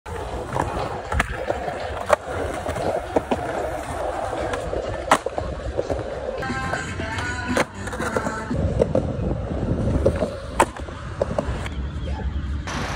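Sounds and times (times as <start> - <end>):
skateboard clacks: 0.1 - 9.0
skateboard wheels rolling on concrete: 0.1 - 12.9.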